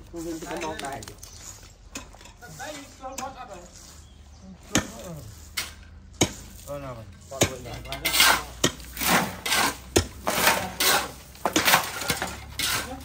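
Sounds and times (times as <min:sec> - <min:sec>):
utensils scraping pots: 0:00.0 - 0:13.0.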